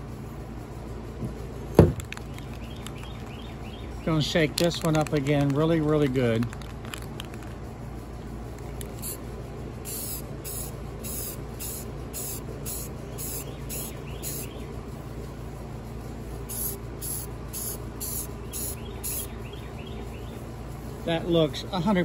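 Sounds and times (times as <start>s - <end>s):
spray paint can hissing: 8.5s - 14.6s, 16.2s - 19.3s.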